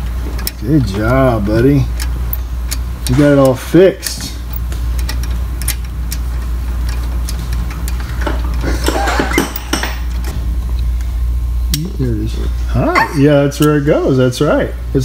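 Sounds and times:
ratchet clicking: 0.0s - 8.7s
low hum: 0.0s - 15.0s.

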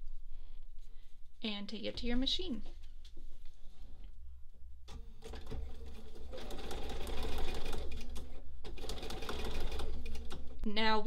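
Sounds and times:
sewing machine stitching: 4.9s - 10.6s.

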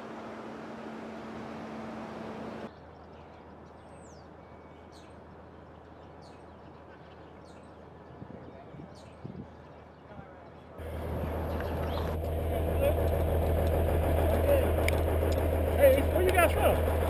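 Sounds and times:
background rumble: 10.8s - 17.0s
low steady hum: 10.8s - 17.0s.

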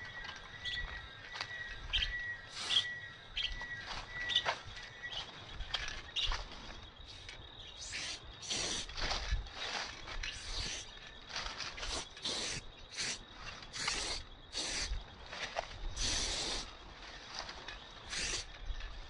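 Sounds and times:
birds chirping: 0.0s - 19.0s
spray can hissing: 7.8s - 8.9s, 11.9s - 13.2s, 13.8s - 14.9s, 16.0s - 16.6s, 18.1s - 18.4s.

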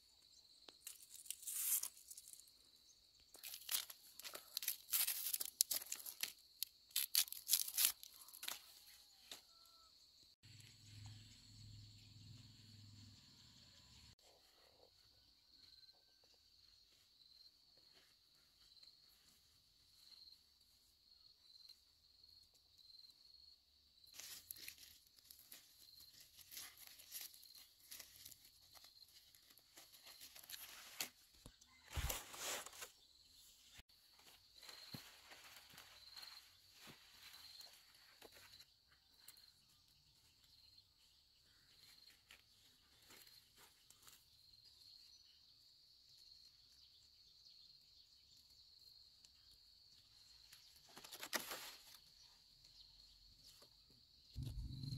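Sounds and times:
bamboo tearing and snapping: 0.8s - 2.4s, 3.4s - 8.6s, 50.9s - 52.0s
leaves rustling: 0.8s - 2.5s, 3.4s - 8.6s, 24.1s - 32.9s
low rumble: 54.4s - 54.9s.

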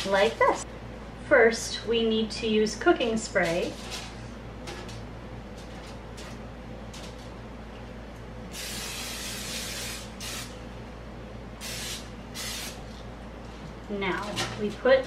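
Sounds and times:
aerosol spray hissing: 11.6s - 12.8s.

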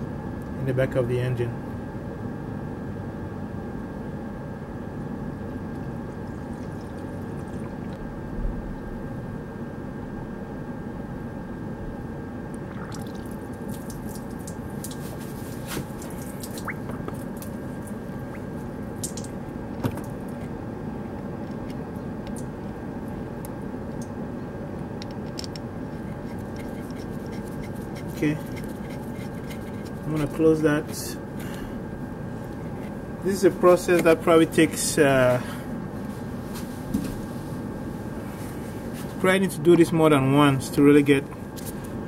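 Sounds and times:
heater blower fan hum: 0.0s - 42.0s
coolant pouring and dripping: 6.1s - 8.1s, 12.5s - 20.4s
small clicks and splashes: 12.8s - 15.2s, 15.9s - 20.2s.

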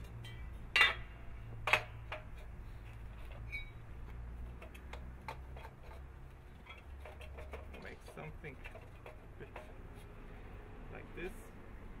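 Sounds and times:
metal pipe knocking: 6.6s - 9.8s.

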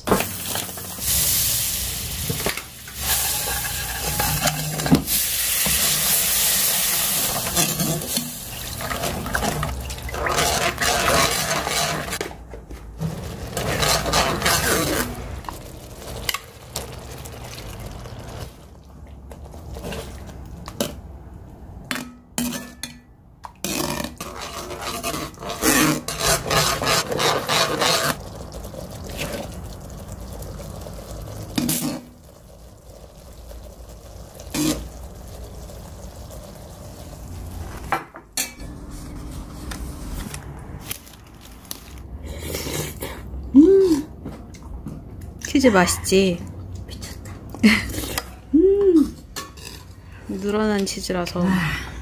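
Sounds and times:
metal spoon scraping a pan: 3.0s - 4.9s, 10.1s - 12.2s, 13.5s - 15.2s, 23.6s - 28.2s, 49.3s - 50.0s.

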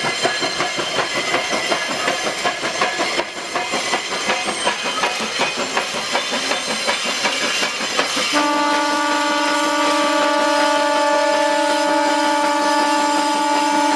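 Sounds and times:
steam locomotive exhaust beating: 0.0s - 13.9s
steam whistle long blast: 8.3s - 13.9s.

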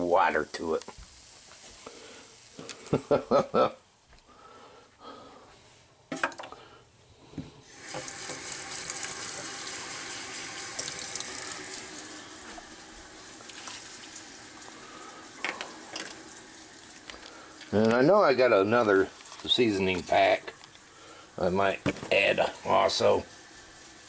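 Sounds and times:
tap water running into cup: 7.7s - 21.0s.

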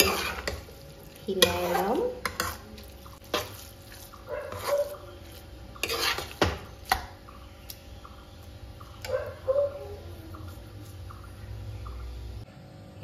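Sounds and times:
spoon scraping in metal pan: 0.0s - 6.7s.

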